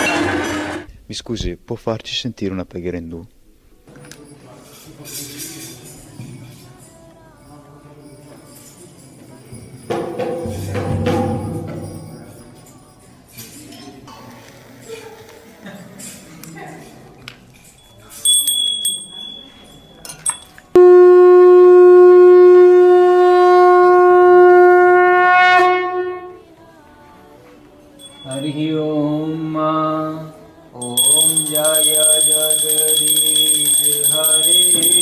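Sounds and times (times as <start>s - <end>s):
small bell ringing: 17.6s - 20.8s, 28.0s - 28.8s, 30.8s - 35.0s
conch shell blown: 20.8s - 26.4s.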